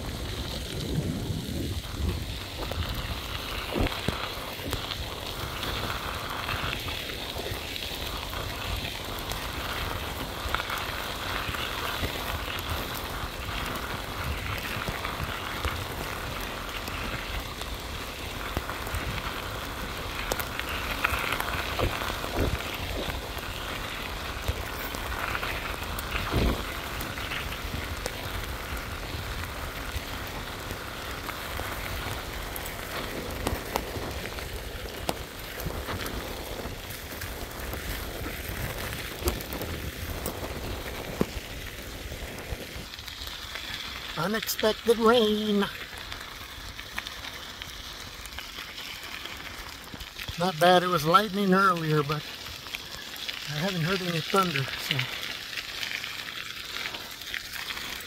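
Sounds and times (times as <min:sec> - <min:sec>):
wind rumbling on microphone: 0:00.0 - 0:44.2
bicycle tyres on gravel: 0:00.0 - 0:58.0
falling rain: 0:00.0 - 0:58.0.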